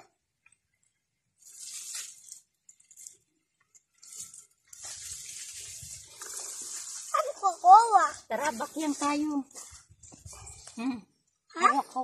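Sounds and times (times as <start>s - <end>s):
plant leaves rustling and crunching: 1.4s - 10.7s.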